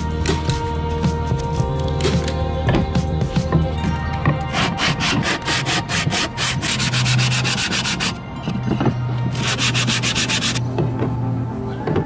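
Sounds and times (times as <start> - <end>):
sandpaper rubbing on wood: 4.5 - 8.2, 9.4 - 10.6.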